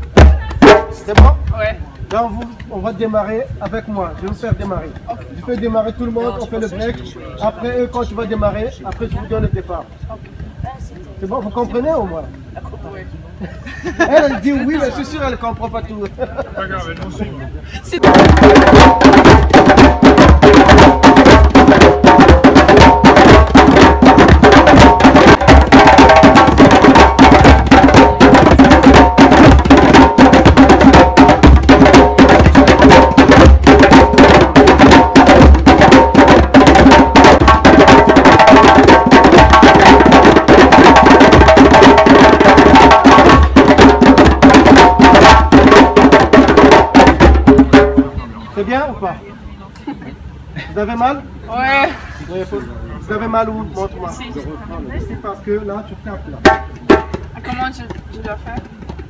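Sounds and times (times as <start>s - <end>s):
djembes drumming fast: 0.0s - 6.7s, 18.0s - 48.8s, 56.4s - 59.0s.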